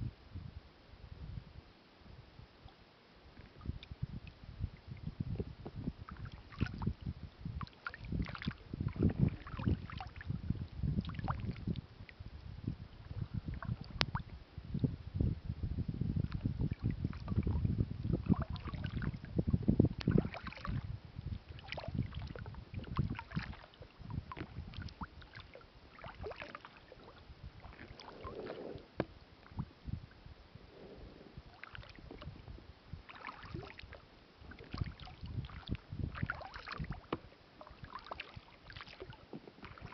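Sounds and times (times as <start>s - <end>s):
paddle splashing in water: 6.1s - 6.9s, 7.6s - 10.3s, 11.0s - 11.8s, 18.2s - 19.2s, 20.0s - 20.8s, 21.5s - 29.6s, 31.3s - 32.4s, 33.0s - 39.9s
low rumble: 27.1s - 32.8s.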